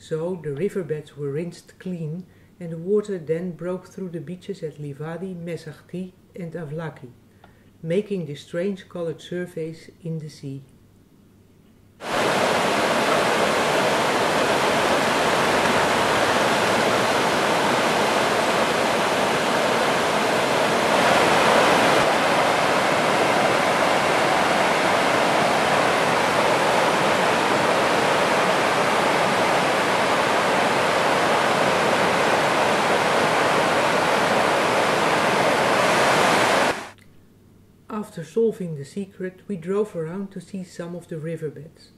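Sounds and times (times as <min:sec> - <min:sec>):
river rushing over rocks: 0:12.0 - 0:36.9.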